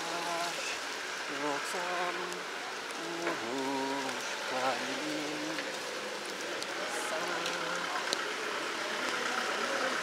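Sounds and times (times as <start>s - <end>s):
man singing slow melody: 0.0s - 6.1s, 6.8s - 8.3s
background hiss: 0.0s - 10.0s.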